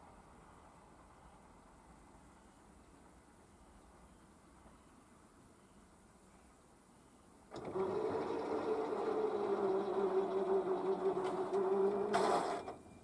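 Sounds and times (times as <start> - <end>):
level crossing barrier motor hum: 7.5 - 13.0.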